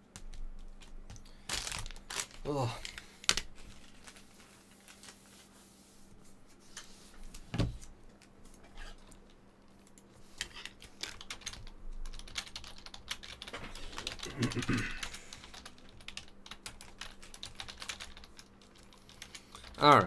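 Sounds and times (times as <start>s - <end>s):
faint steady hum: 0.0s - 20.0s
keyboard typing: 10.4s - 20.0s.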